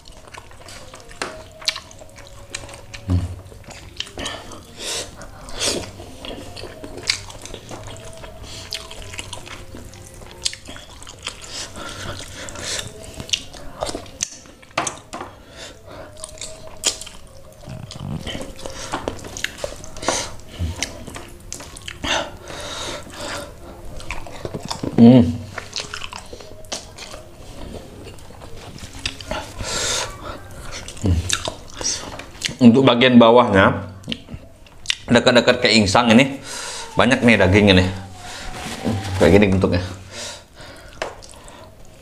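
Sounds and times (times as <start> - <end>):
wet chewing and lip-smacking: 0.0 - 15.1, 16.0 - 22.3, 23.0 - 32.7, 34.0 - 35.1, 40.8 - 41.7.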